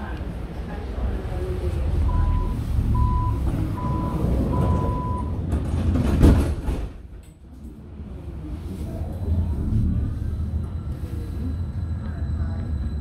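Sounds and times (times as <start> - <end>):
train low rumble: 0.0 - 13.0
high warning beep: 2.1 - 5.4
sliding doors banging shut: 3.4 - 7.2.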